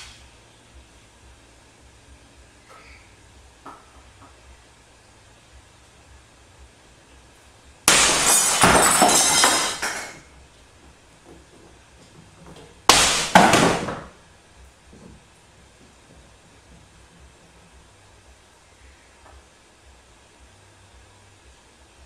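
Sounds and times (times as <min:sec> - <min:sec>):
objects crashing and breaking on floor: 0:07.9 - 0:10.3, 0:12.9 - 0:14.1.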